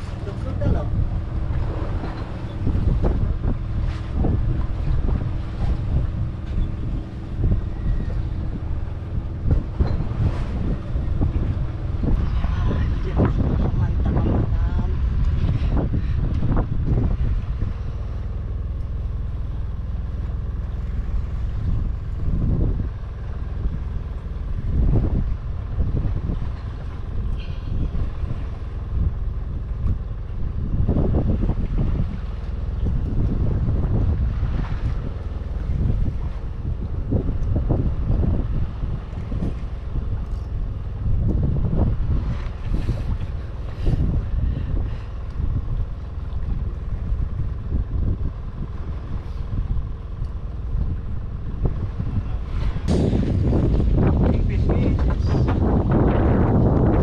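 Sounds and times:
boat motor rumbling: 0.0s - 57.0s
sea: 0.0s - 57.0s
wind buffeting microphone: 0.0s - 57.0s.

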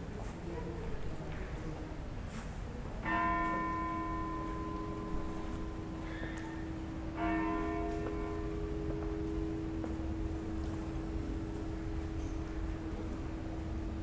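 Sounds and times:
church bell tolling: 3.0s - 14.0s.

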